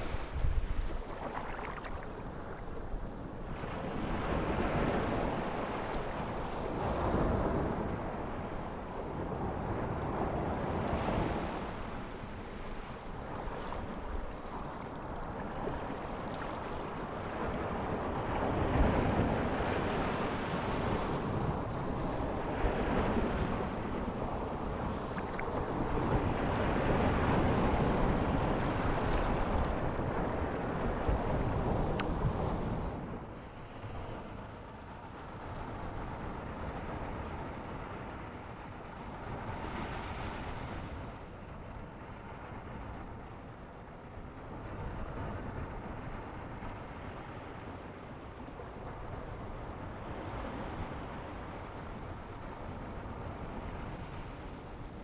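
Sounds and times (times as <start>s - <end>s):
ocean waves breaking: 0.0s - 8.6s, 10.6s - 34.0s.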